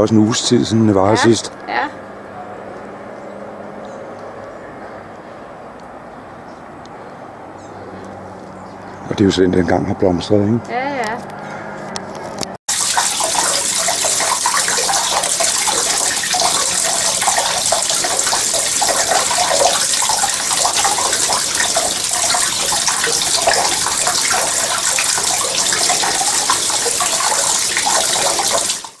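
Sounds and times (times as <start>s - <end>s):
fountain water splashing into pond: 12.7s - 29.0s.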